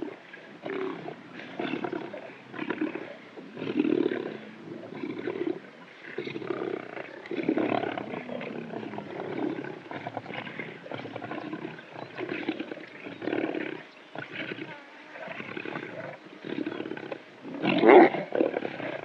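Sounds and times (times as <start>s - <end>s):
lions growling and panting: 0.4s - 19.0s.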